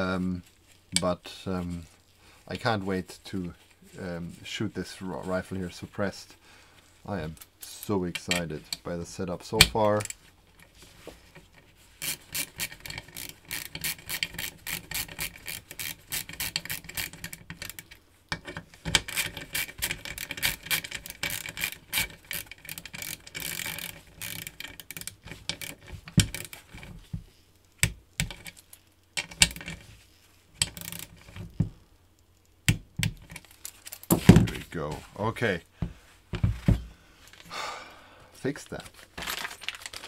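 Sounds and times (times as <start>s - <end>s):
ratchet wrench clicking: 12.0s - 17.9s, 18.9s - 26.6s, 30.6s - 31.3s.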